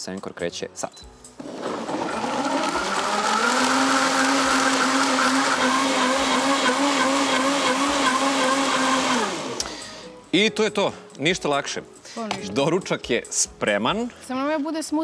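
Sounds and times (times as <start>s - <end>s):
blender motor running: 1.4s - 10.0s.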